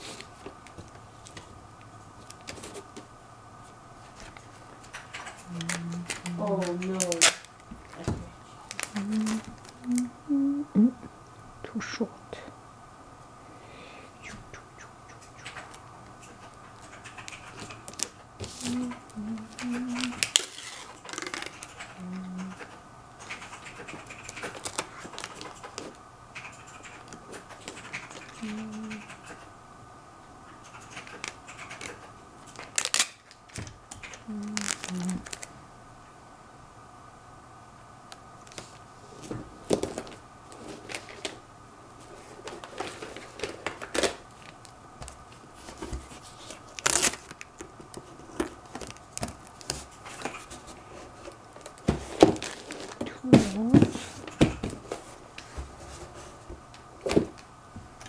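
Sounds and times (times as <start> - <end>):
packing tape crinkling and rubbing: 4.1 - 10.0, 16.4 - 22.0, 24.1 - 26.0, 31.1 - 35.5, 42.1 - 56.2
tape ripping: 5.5 - 7.6, 20.0 - 21.7, 32.6 - 33.4, 34.5 - 35.5, 46.3 - 47.6.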